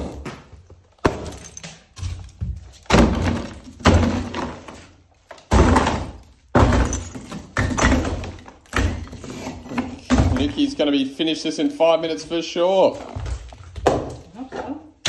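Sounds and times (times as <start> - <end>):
rubble breaking and falling: 0.0 - 10.8, 13.1 - 14.3
sledgehammer striking brick: 2.9 - 4.7, 5.4 - 10.6.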